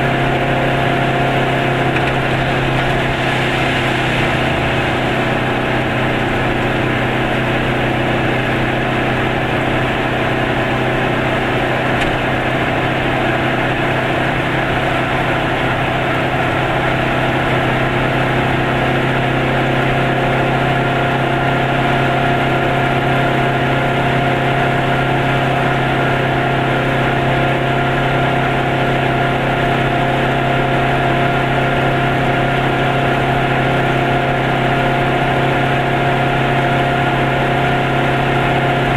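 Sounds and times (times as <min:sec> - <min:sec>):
tyre and road noise: 0:00.0 - 0:15.0
car engine cruising: 0:00.0 - 0:38.9.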